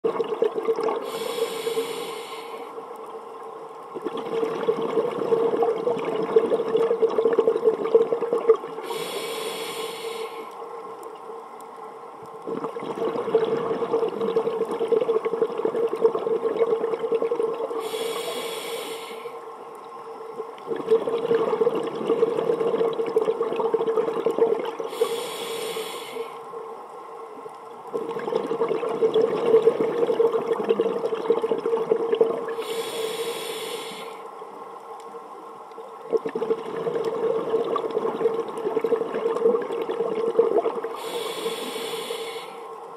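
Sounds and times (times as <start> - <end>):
exhaled bubbles rushing: 0.0 - 1.1, 3.9 - 8.8, 12.4 - 17.8, 20.7 - 24.9, 27.9 - 32.6, 36.1 - 41.1
regulator inhale hiss: 1.0 - 2.8, 8.8 - 10.7, 17.8 - 19.5, 24.9 - 26.5, 32.5 - 34.3, 40.9 - 42.8.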